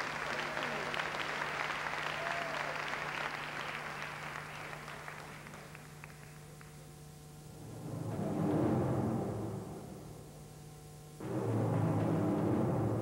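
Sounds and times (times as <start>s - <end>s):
audience applauding: 0.0s - 6.8s
steady low hum: 2.8s - 13.0s.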